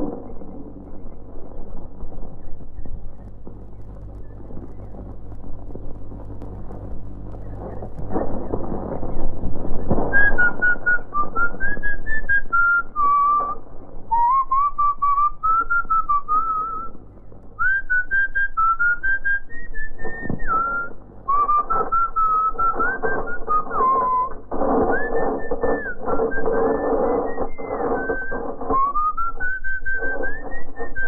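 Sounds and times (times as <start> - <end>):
person whistling a tune: 10.1 - 16.9, 17.6 - 24.3, 24.9 - 31.0.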